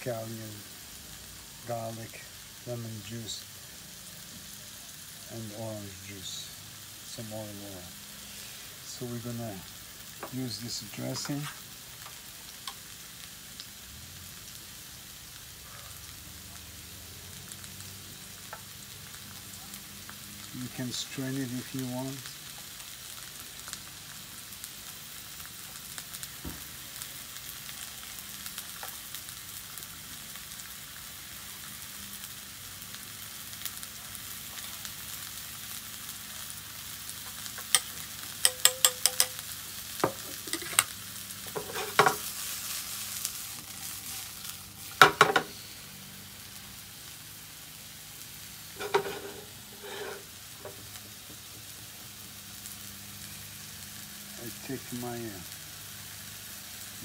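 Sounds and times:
mushrooms sizzling in a pan: 0.0s - 57.0s
metal clinks: 37.7s - 39.4s.

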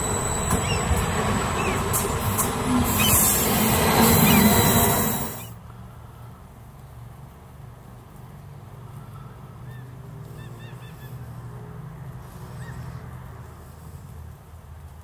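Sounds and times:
high bird chirps: 0.0s - 2.0s, 2.9s - 5.6s.

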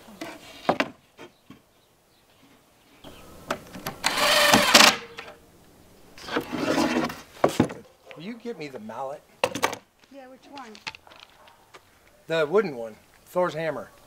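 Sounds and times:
power tool whirr: 3.7s - 5.3s.

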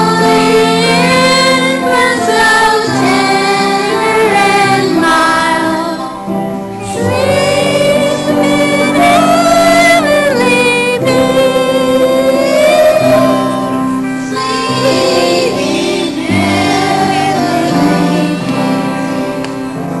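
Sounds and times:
low accompanying chords: 0.0s - 20.0s
young voices singing a hymn: 0.0s - 20.0s.

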